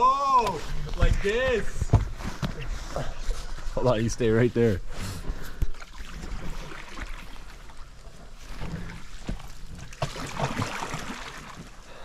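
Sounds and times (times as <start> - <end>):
paddle splashing through water: 5.7 - 11.8.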